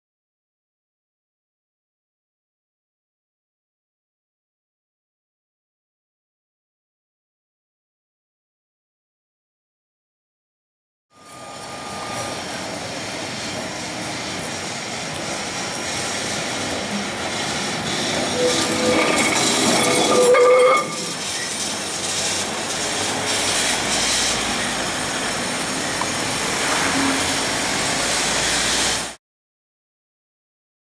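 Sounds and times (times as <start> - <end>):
steel wheels squealing: 11.1 - 29.2
tram rumbling on rails: 11.2 - 29.2.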